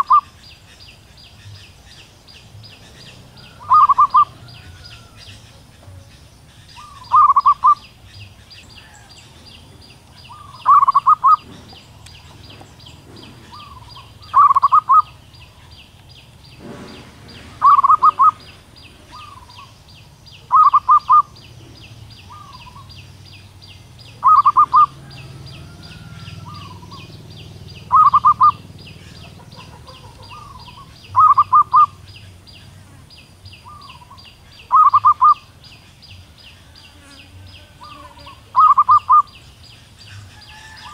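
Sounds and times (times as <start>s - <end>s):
dove calling: 0.0s - 40.9s
high-pitched chirping: 3.6s - 4.4s, 5.8s - 8.0s, 10.2s - 11.5s, 13.5s - 15.2s, 17.6s - 18.5s, 20.4s - 21.4s, 24.1s - 25.0s, 26.4s - 32.0s, 33.7s - 35.5s, 37.8s - 39.4s.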